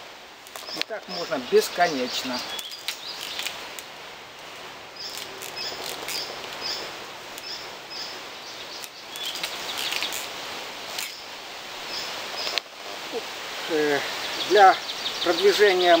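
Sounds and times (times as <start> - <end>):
bird chirping: 0.6 - 3.6, 5.0 - 10.3, 14.1 - 16.0.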